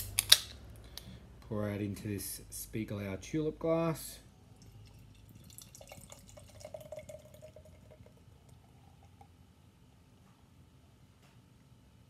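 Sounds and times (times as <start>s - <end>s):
beer pouring into glass: 4.5s - 9.4s.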